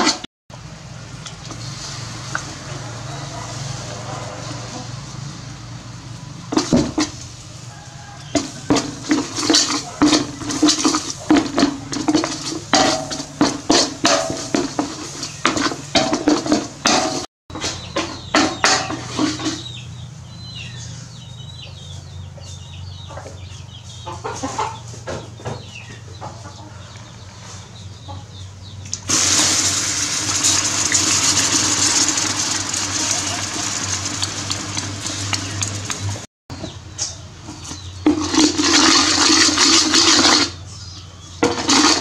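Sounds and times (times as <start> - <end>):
chickens clucking: 2.6 - 5.4, 7.4 - 16.1, 17.0 - 29.0
sauce sizzling in hot pot: 29.1 - 36.2.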